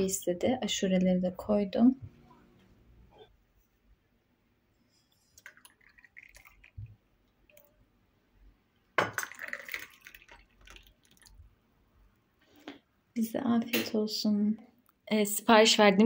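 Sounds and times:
water pouring: 5.3 - 7.8, 9.0 - 11.6.

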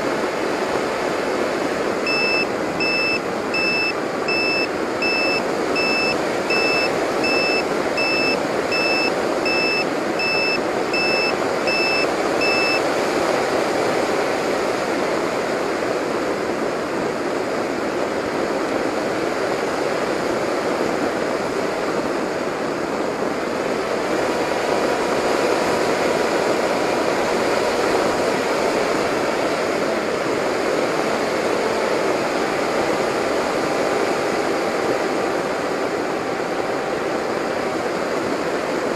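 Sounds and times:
airflow and propeller noise: 0.0 - 38.9
high electronic beep: 2.1 - 12.8.

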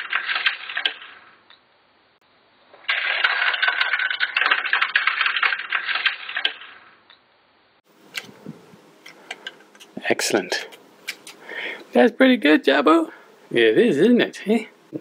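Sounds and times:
plastic toy seeds clattering: 2.8 - 6.7.

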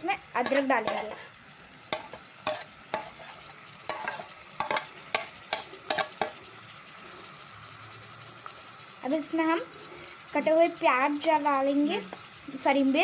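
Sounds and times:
onions sizzling in oil: 0.0 - 13.0
metal spoon scraping a bowl: 0.4 - 1.4, 2.0 - 6.4.

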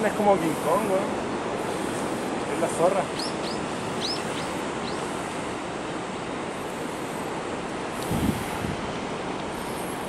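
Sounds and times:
water rushing: 0.0 - 10.0
wind buffeting microphone: 0.0 - 10.0
wind rushing: 7.6 - 9.3.

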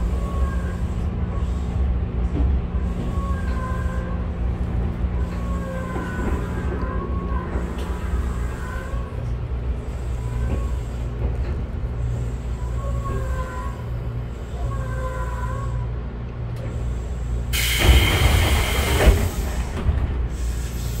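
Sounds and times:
train car low rumble: 0.0 - 21.0.

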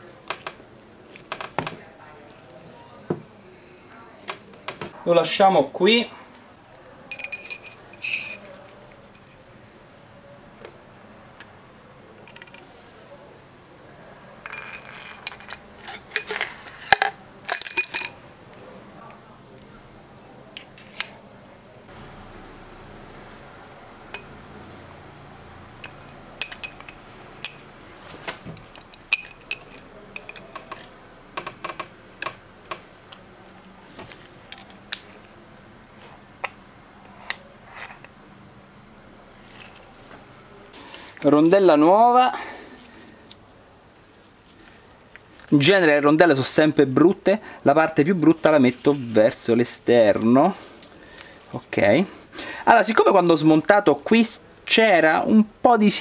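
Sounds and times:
metal fork parts clinking: 7.1 - 9.4, 12.2 - 12.7, 14.4 - 18.2, 20.6 - 21.2, 25.8 - 27.6, 28.3 - 33.2, 34.5 - 35.3.

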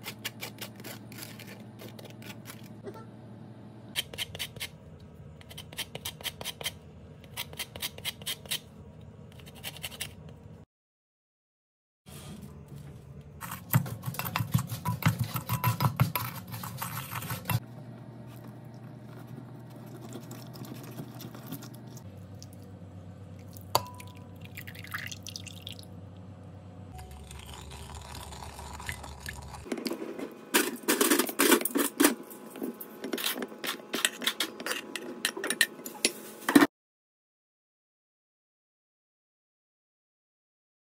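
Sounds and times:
juice dripping into bowl: 23.4 - 25.9, 27.0 - 29.5.

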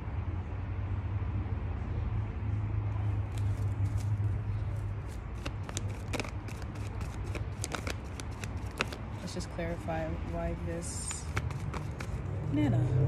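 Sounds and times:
cards being shuffled: 3.2 - 9.5, 10.2 - 12.3.

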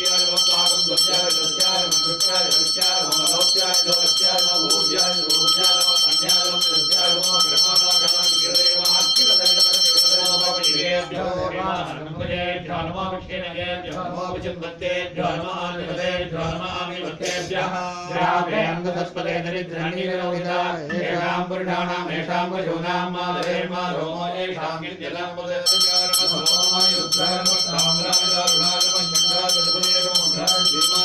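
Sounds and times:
hand bell ringing rapidly: 0.0 - 11.1, 25.6 - 31.0
male voices chanting: 0.0 - 31.0.

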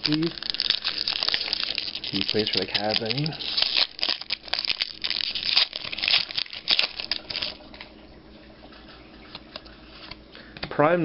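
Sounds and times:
foil wrapper crinkling and tearing: 0.0 - 7.9.

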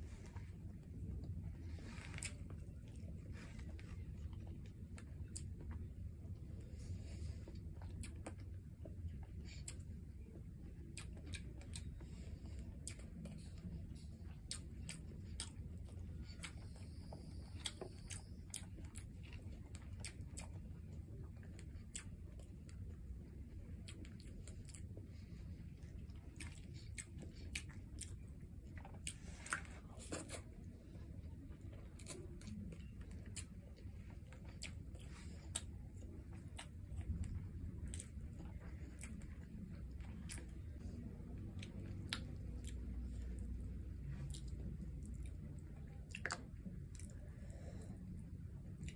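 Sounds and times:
low steady hum: 0.0 - 48.9
wet chewing and mouth clicks: 0.1 - 48.9.

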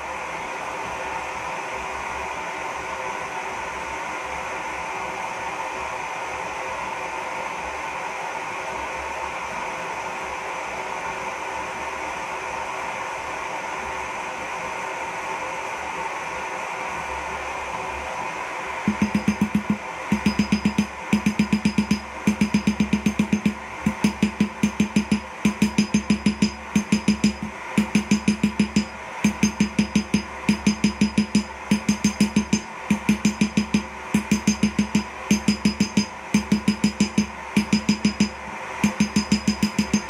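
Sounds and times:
hammer ringing on anvil: 18.9 - 40.0.

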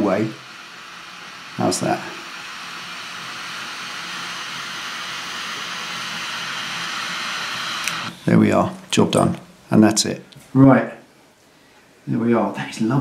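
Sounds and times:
lighter flame hissing: 0.0 - 8.4.

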